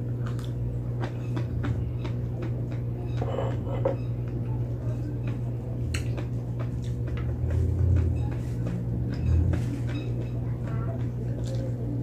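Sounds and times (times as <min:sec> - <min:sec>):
chewing and mouth noises: 0:00.0 - 0:02.7
steady low hum: 0:00.0 - 0:12.0.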